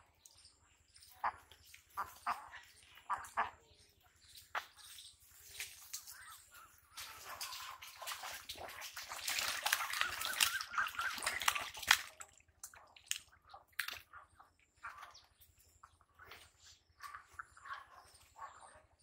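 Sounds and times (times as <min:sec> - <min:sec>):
ducks splashing in water: 0:01.1 - 0:18.7.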